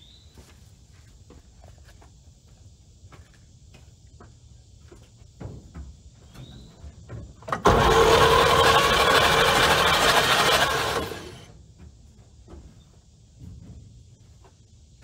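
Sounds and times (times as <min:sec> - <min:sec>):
starter cranking engine: 0:07.5 - 0:11.5.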